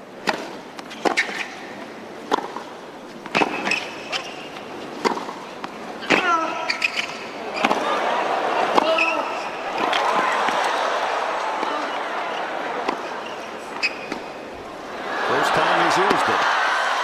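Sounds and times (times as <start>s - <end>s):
court shoes squeaking: 0.2s - 16.4s
tennis ball racket hits: 2.3s - 4.4s, 5.0s - 8.0s, 8.6s - 9.2s, 11.5s - 14.4s.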